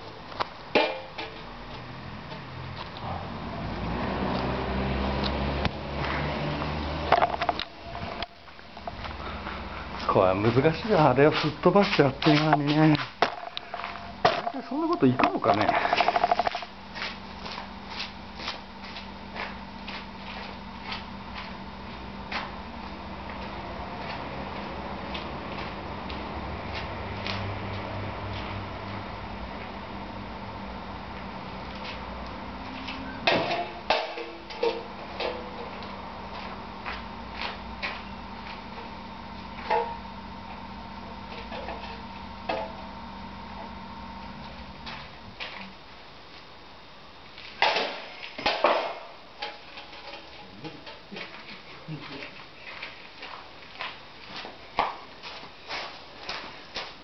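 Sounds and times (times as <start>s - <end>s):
footsteps on leaves and gravel: 8.0s - 21.6s, 51.2s - 57.0s.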